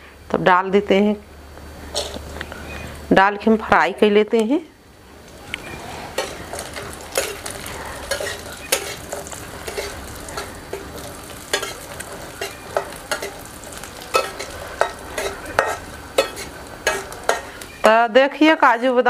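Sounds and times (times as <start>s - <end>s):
nuts sizzling in hot fat: 0.1s - 19.0s
metal spatula scraping a pan: 1.9s - 2.3s, 5.7s - 17.8s, 18.5s - 19.0s.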